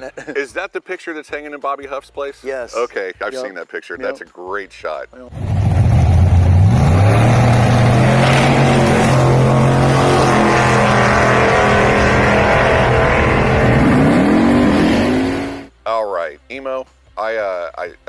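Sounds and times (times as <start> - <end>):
drag car engine running loud: 5.3 - 15.7.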